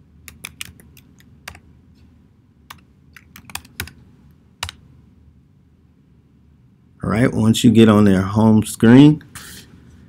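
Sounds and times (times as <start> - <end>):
computer keyboard keystrokes: 0.3 - 1.6, 2.7 - 4.0.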